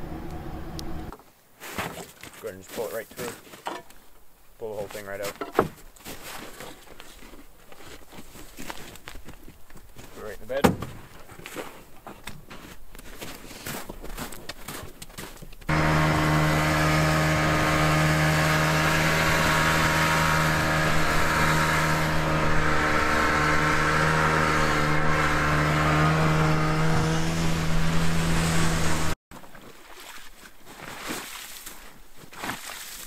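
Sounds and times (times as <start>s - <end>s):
quiet outdoor ambience: 0.0s - 15.7s
snowmobile engine running: 15.7s - 29.2s.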